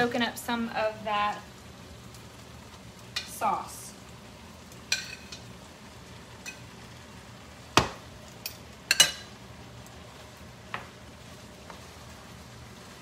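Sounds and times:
faint sizzle: 0.0s - 13.0s
metal utensil clinking on skillet: 4.9s - 5.5s, 6.4s - 6.7s, 8.4s - 9.4s.

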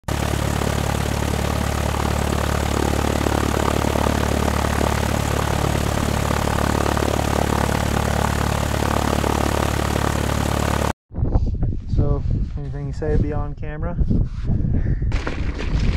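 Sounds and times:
propeller airplane engine drone: 0.0s - 11.0s.

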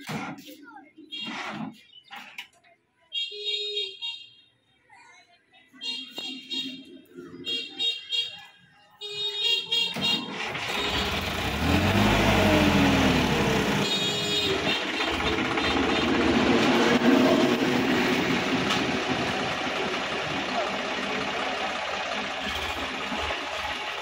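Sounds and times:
tractor diesel engine under load: 10.0s - 24.0s.

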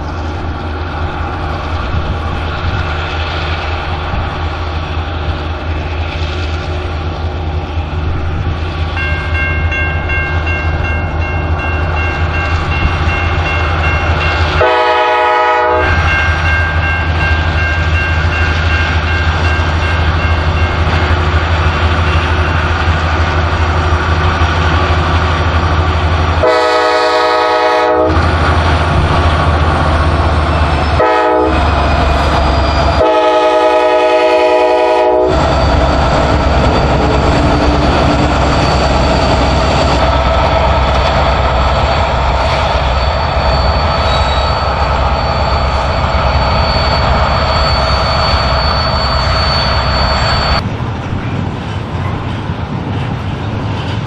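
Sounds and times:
diesel locomotive engine drone: 0.0s - 54.0s
train air horn blasts: 14.4s - 16.4s, 26.4s - 28.3s, 31.0s - 31.8s, 32.9s - 35.5s.

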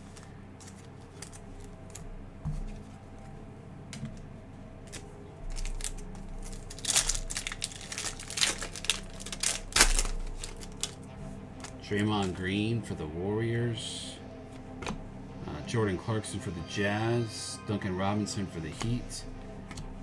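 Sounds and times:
foil wrapper crinkling and tearing: 4.9s - 11.0s.

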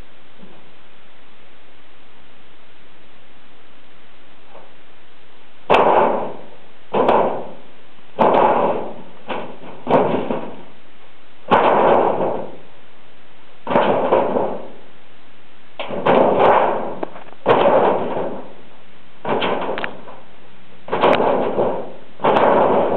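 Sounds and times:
metal sheet banging and rattling: 5.7s - 10.8s, 11.4s - 12.7s, 13.6s - 14.8s, 15.8s - 20.3s, 20.9s - 22.9s.

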